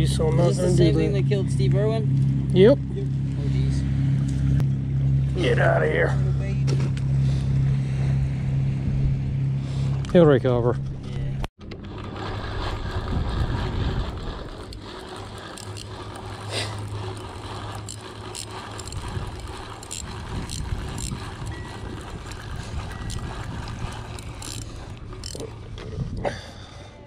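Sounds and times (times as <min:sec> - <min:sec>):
low rumble: 0:00.0 - 0:27.0
fishing reel cranking: 0:11.8 - 0:25.9.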